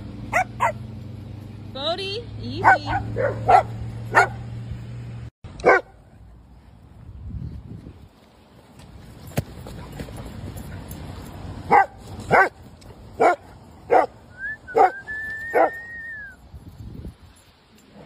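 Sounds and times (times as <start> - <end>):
dog barking: 0.3 - 0.8, 2.6 - 4.5, 5.6 - 6.0, 11.7 - 12.6, 13.2 - 15.8.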